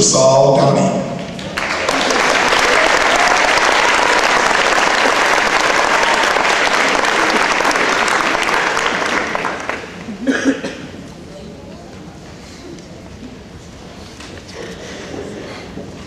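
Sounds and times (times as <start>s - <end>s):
audience applauding: 1.3s - 10.3s.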